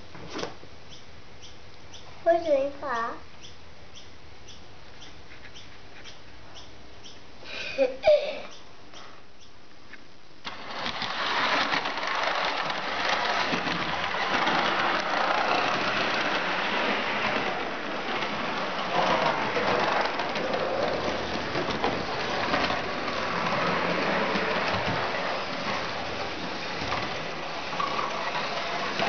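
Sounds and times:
model tram running on track: 10.5 - 29.0.

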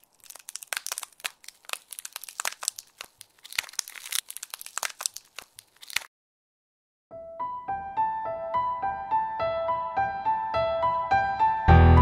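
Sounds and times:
ice crackling and crunching: 0.0 - 6.1.

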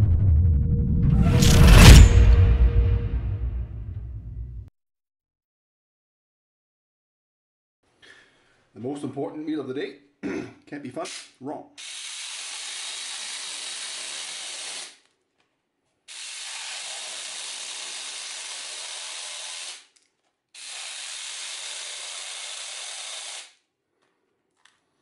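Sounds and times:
miniature chainsaw whirring: 11.1 - 15.1, 16.1 - 23.6.

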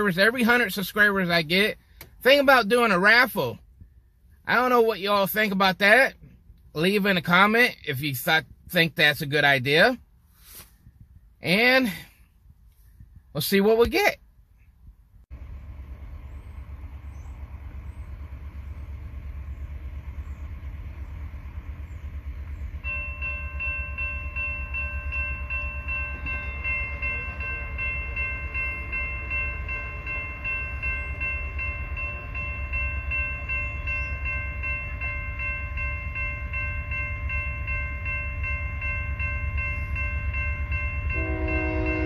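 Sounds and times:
railroad crossing bell ringing: 0.0 - 3.6, 16.7 - 42.0
low steady rumble: 14.2 - 42.0.

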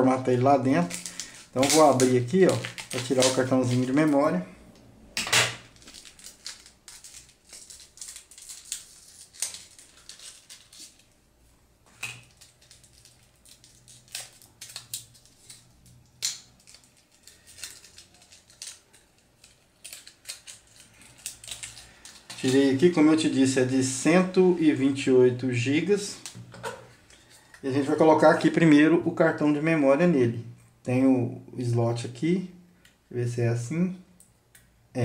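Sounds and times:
plastic packaging torn open: 0.7 - 4.4, 5.5 - 11.2, 12.0 - 23.0.

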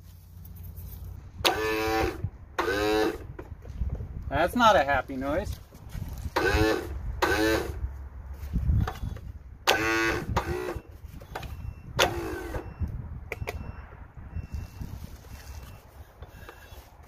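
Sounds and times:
electric starter cranking engine: 1.4 - 3.3, 6.3 - 7.8, 8.8 - 10.9, 12.0 - 12.7.

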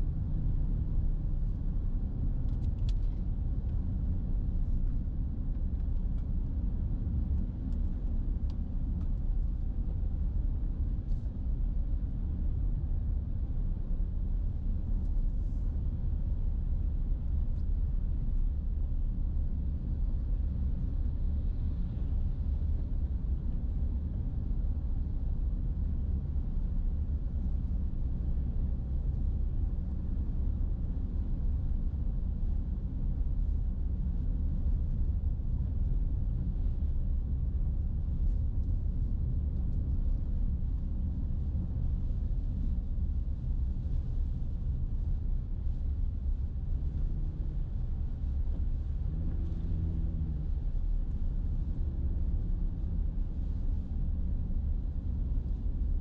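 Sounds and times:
car engine and tyres rumbling: 0.0 - 56.0.

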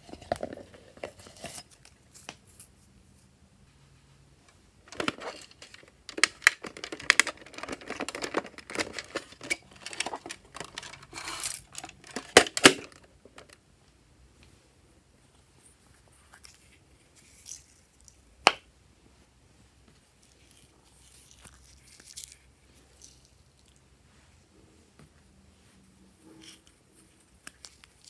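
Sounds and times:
plastic coin bank rattling: 4.9 - 13.6
plastic case snapping open: 11.7 - 13.6.

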